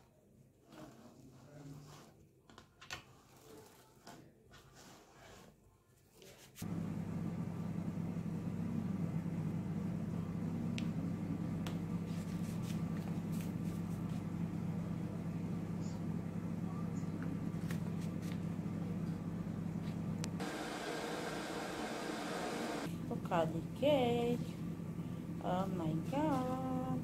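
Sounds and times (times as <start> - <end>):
steady low hum: 6.6 - 27.0.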